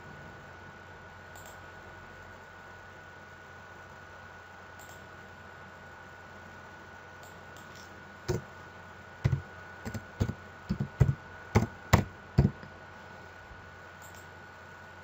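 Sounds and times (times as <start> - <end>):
faint electrical hum: 0.0 - 15.0
keyboard keys typing: 9.2 - 12.7.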